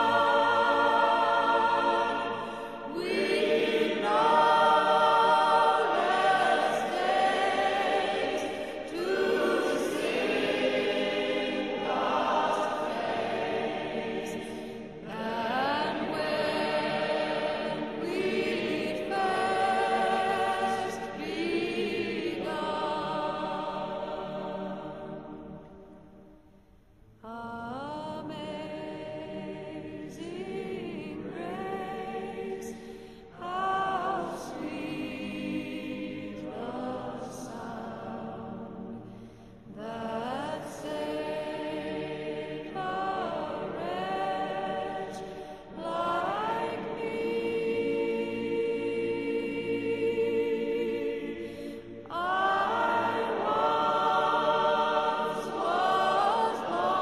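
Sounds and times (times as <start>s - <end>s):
choir singing: 0.0s - 26.3s, 27.2s - 57.0s.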